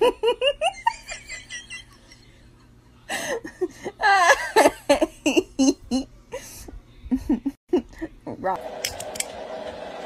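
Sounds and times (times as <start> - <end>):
person laughing: 3.1 - 8.1.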